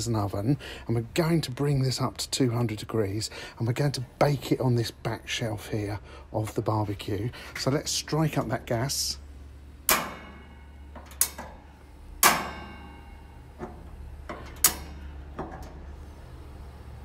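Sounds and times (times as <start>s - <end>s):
gas barbecue igniter clicking: 9.8s - 15.9s.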